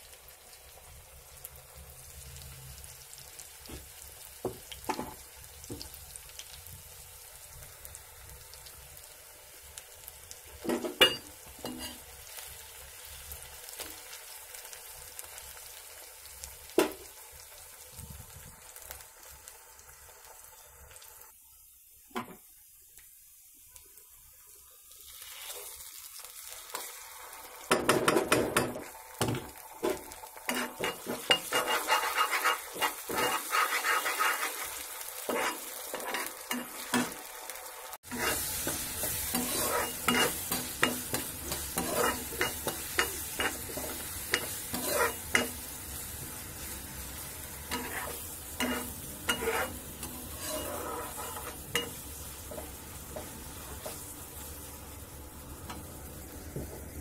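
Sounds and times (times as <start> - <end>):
onions sizzling in oil: 0.0 - 57.0
spatula scraping a pan: 11.1 - 12.1, 29.8 - 37.2, 38.0 - 45.7, 47.7 - 54.1.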